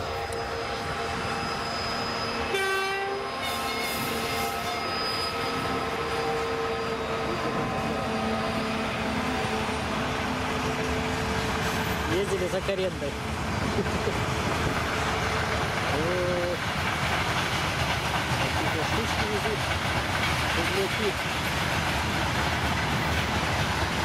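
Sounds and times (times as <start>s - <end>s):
train horn blast: 0.0s - 9.9s
freight train rumbling: 0.0s - 24.0s.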